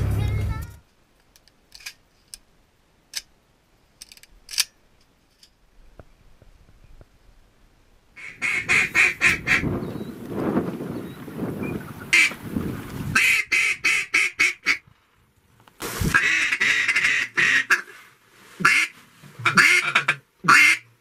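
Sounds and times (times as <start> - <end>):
ducks quacking rapidly: 8.2 - 9.7, 13.2 - 14.8, 16.1 - 17.9, 18.6 - 20.9.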